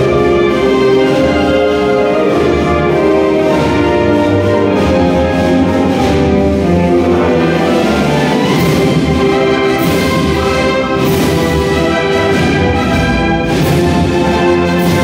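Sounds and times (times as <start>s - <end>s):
wind band playing a march: 0.0s - 15.0s.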